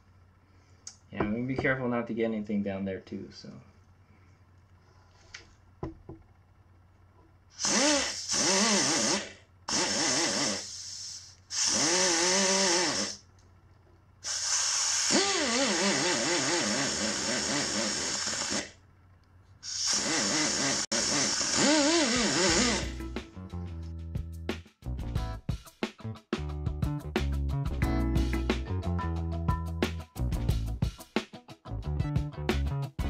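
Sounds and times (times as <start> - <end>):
pneumatic die grinder on metal: 7.6 - 13.2, 14.2 - 18.8, 19.6 - 23.0.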